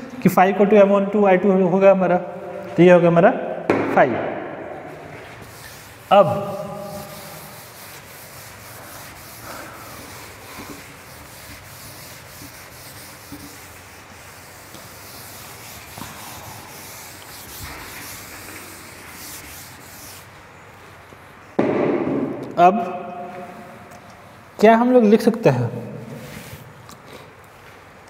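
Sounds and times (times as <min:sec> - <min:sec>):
duster rubbing on chalkboard: 0:04.9 - 0:20.6, 0:26.1 - 0:26.7.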